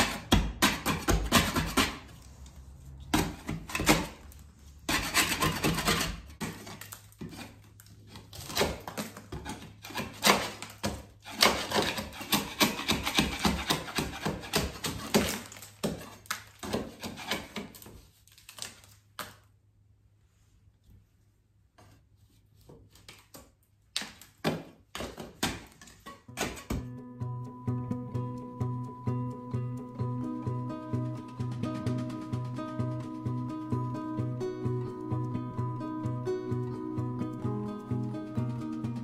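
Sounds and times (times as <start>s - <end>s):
metal scraper scraping a wall: 0.0s - 18.0s, 24.2s - 26.9s.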